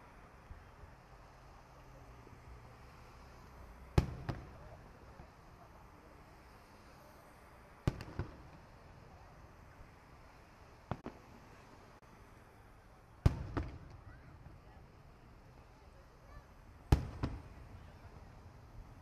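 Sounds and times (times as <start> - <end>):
firework shells booming: 3.9 - 5.3, 7.8 - 8.9, 13.2 - 14.6, 16.8 - 18.1.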